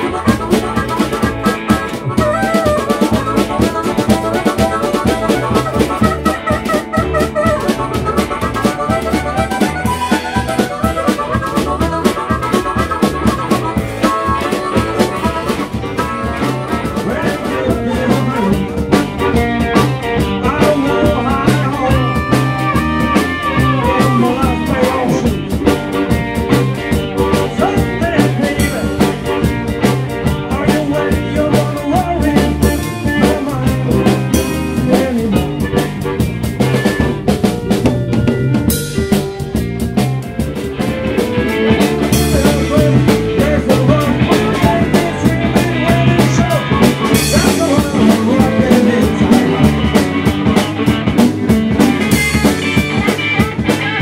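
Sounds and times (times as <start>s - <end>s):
bass: 0.0s - 54.0s
drum kit beat: 0.0s - 54.0s
electric guitar: 0.0s - 54.0s
harmonica: 0.0s - 54.0s.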